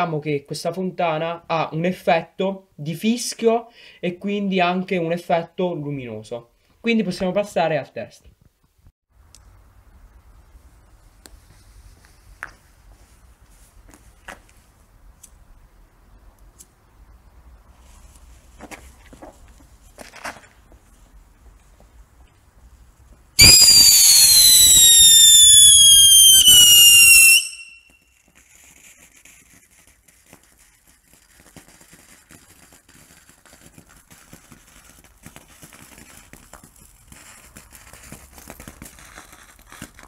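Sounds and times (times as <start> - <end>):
shrill firework whistle: 23.4 - 28.2
sparks hissing and crackling: 23.4 - 40.0.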